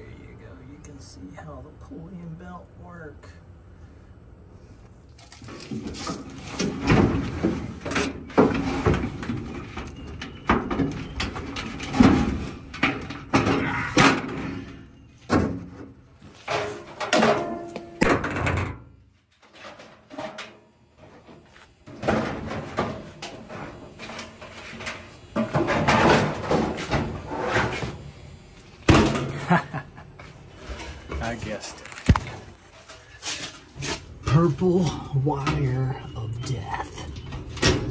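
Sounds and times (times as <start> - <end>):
sheet metal clunking and scraping: 5.5 - 28.0.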